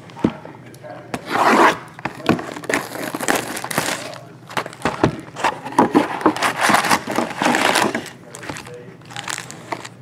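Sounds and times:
plastic shrink-wrap crinkling: 2.5 - 5.0, 6.4 - 10.0
cardboard box rustling: 2.6 - 9.9.

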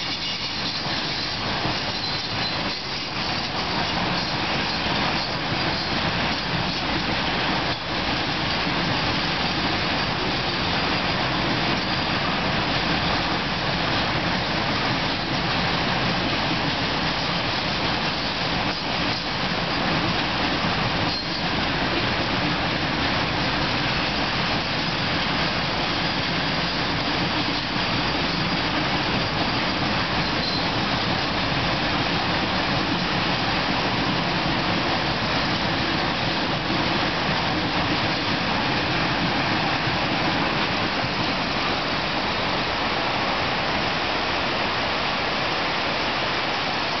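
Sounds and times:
freight wagons rolling over bridge: 0.0 - 47.0
waterfall rushing: 16.8 - 47.0.

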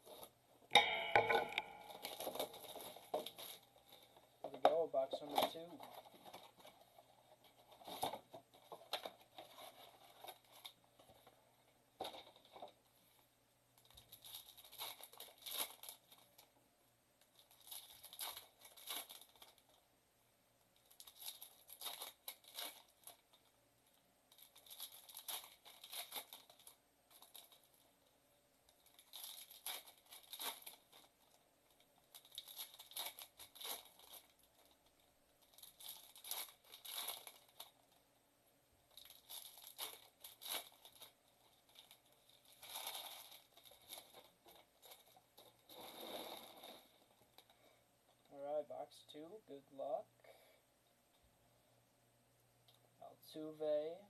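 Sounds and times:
foil wrappers tearing and crinkling: 14.0 - 16.4, 17.4 - 19.7, 20.9 - 23.4, 24.3 - 27.8, 28.8 - 31.4, 32.0 - 37.9, 38.9 - 47.5.

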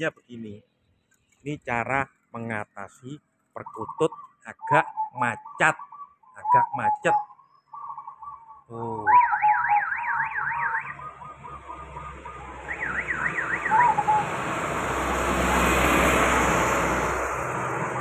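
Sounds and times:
warbling electronic siren tone: 6.6 - 15.3
motor vehicle passing: 10.4 - 18.0.

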